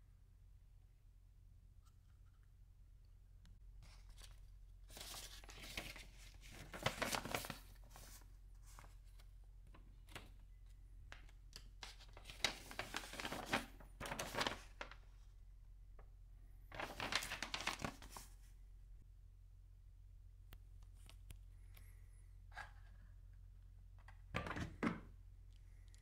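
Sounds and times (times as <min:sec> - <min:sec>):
paper pages rustling: 0:03.8 - 0:10.4, 0:11.1 - 0:15.1, 0:16.7 - 0:18.5.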